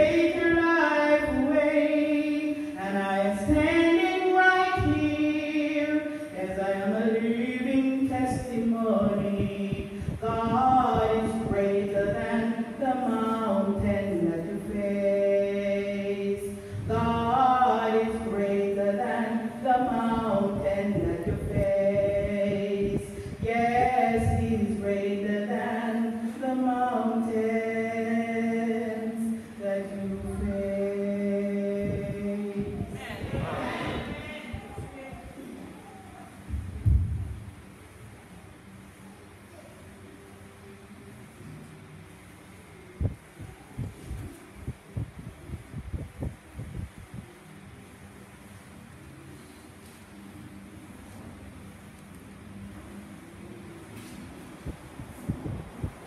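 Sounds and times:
group singing a worship song: 0:00.0 - 0:34.6
choir singing sacred song: 0:29.9 - 0:34.6.

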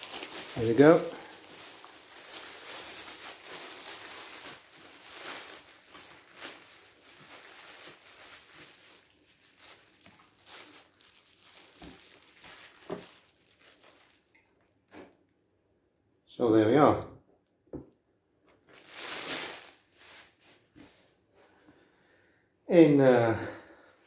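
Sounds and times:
plastic bag crinkling: 0:00.0 - 0:14.4, 0:18.6 - 0:20.3.

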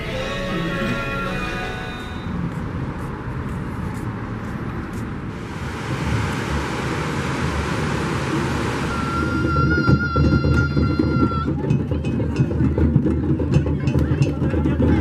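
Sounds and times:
car road noise rumble and hiss: 0:00.2 - 0:10.1.

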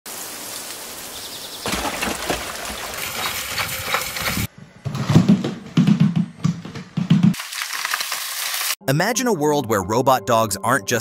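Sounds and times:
robot dog splashing through puddle: 0:01.7 - 0:04.5.

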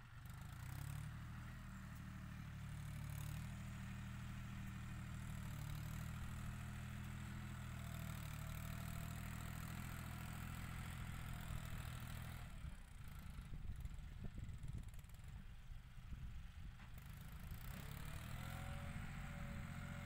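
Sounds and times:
distant tractor diesel engine: 0:00.0 - 0:20.0.

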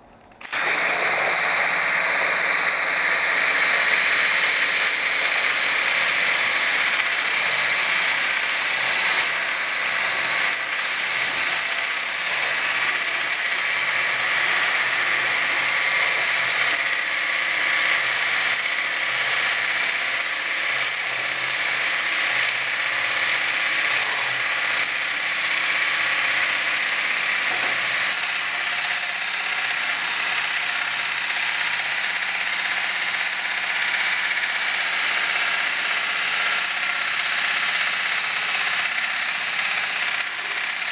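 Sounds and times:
hand blender whirring: 0:00.0 - 0:40.9.

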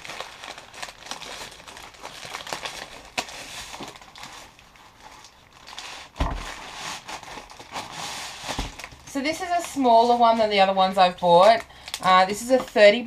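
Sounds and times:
plastic bag crinkling: 0:00.0 - 0:13.0
heavy thump: 0:06.2 - 0:06.5.

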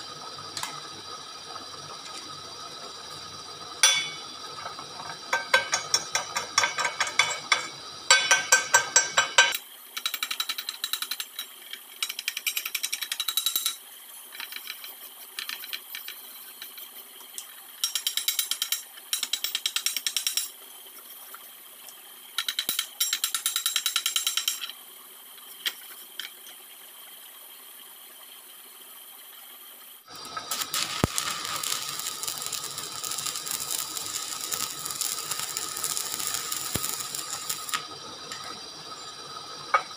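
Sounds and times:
welding arc hissing and crackling: 0:00.0 - 0:09.6, 0:30.1 - 0:39.9
chipping hammer tapping metal: 0:03.8 - 0:04.3, 0:05.3 - 0:09.6.

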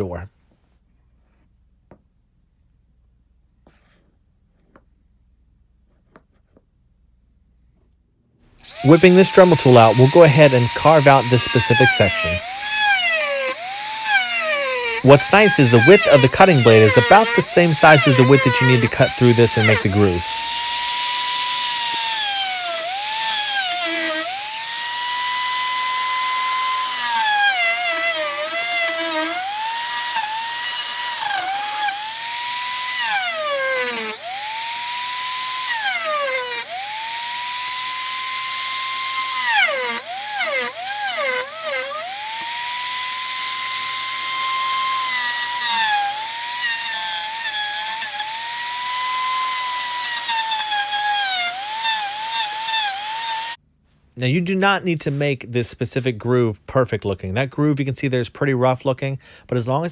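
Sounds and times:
rotary tool cutting plastic: 0:08.6 - 0:53.6.

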